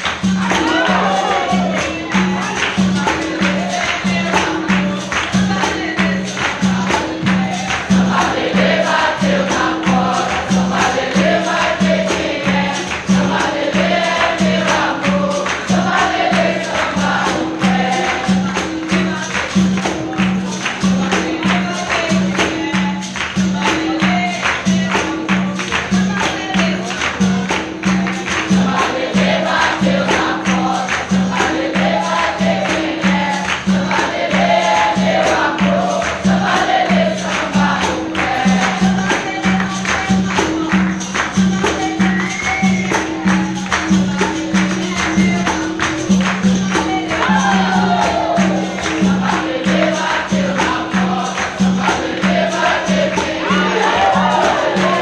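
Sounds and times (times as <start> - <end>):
berimbau and pandeiro beat: 0.0 - 55.0
group singing: 0.0 - 55.0.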